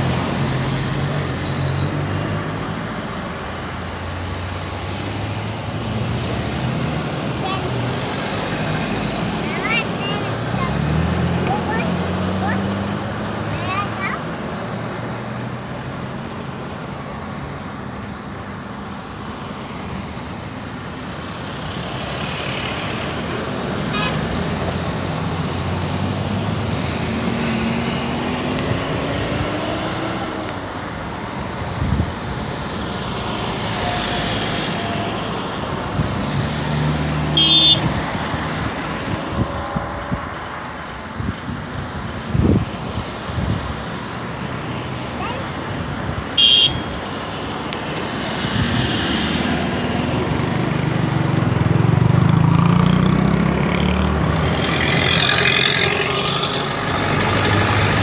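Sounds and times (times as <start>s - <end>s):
engine hum: 19.3s - 58.0s
engine revving: 48.3s - 58.0s.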